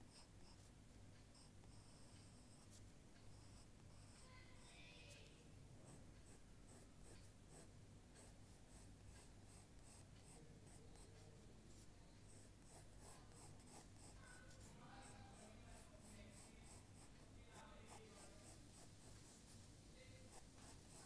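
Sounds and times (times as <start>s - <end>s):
drawing tool scratching on paper: 0.0s - 0.7s, 1.3s - 4.7s, 5.9s - 21.0s.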